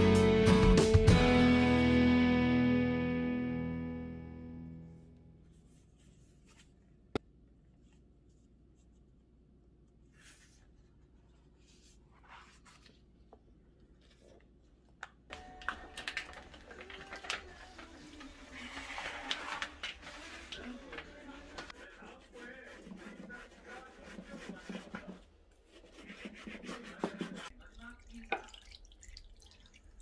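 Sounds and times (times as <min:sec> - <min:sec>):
paper rustling of book pages: 0:05.5 - 0:06.9, 0:10.1 - 0:14.6, 0:15.3 - 0:27.5.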